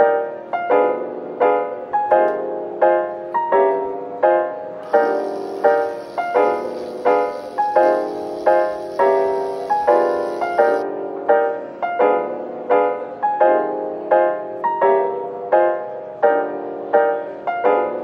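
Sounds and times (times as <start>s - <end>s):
lo-fi piano chords: 0.0s - 18.0s
steady high hiss: 4.8s - 10.8s.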